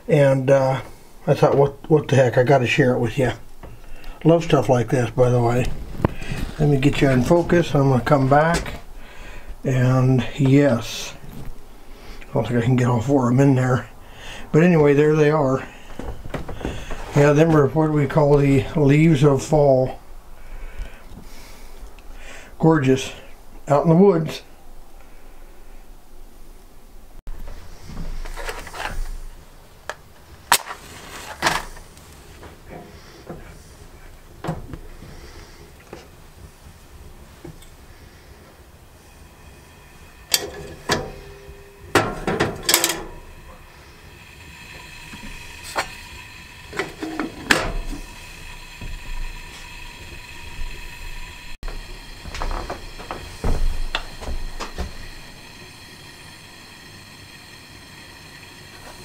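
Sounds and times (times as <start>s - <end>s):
camp stove burner hissing: 0.3s - 24.4s, 27.5s - 59.0s
handling and rustling: 27.3s - 33.6s.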